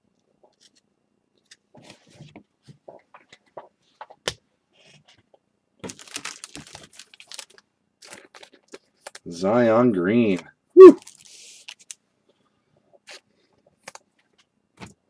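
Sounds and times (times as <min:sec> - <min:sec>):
card handling clicks and rustles: 0:05.8 - 0:09.3
plastic wrapper crinkling and tearing: 0:05.8 - 0:09.3, 0:11.0 - 0:12.0, 0:13.0 - 0:14.1.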